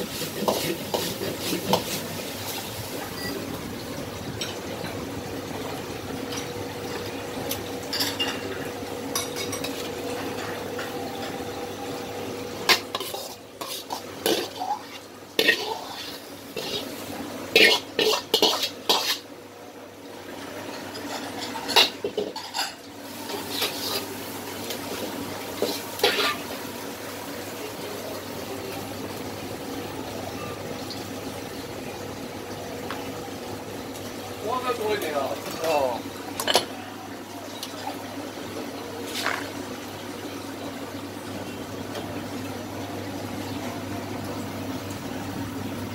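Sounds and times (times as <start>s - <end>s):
background hum with faint tone: 0.0s - 45.9s
metal ladle scraping a wok: 17.6s - 19.2s.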